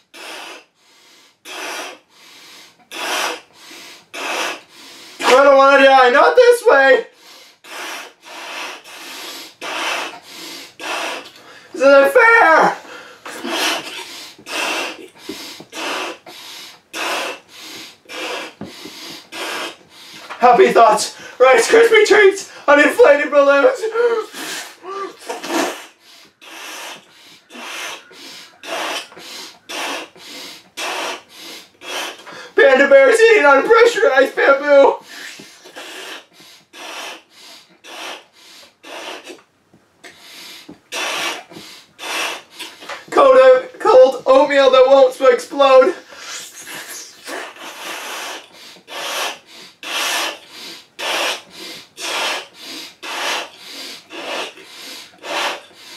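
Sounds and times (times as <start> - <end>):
man breathing hard: 0.0 - 5.3, 7.1 - 11.8, 12.7 - 20.4, 21.1 - 21.4, 22.4 - 22.7, 24.0 - 32.6, 35.0 - 43.2, 45.9 - 55.9
blowing into balloon: 0.0 - 5.4, 7.5 - 11.4, 13.3 - 20.4, 24.3 - 32.4, 35.0 - 43.2, 46.1 - 55.9.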